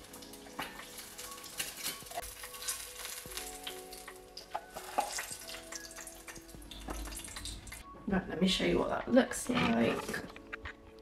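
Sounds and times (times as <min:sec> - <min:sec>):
egg sizzling in frying pan: 0:00.0 - 0:07.8
spatula scraping pan: 0:09.4 - 0:10.3.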